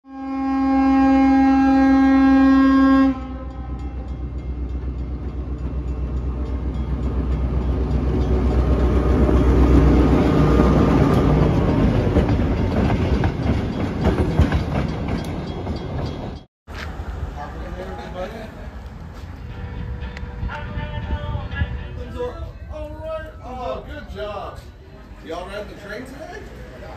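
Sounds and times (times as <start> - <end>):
diesel locomotive horn: 0.0 - 4.4
locomotive engine rumble: 0.5 - 23.4
wheels clacking over rail joints: 4.7 - 17.0.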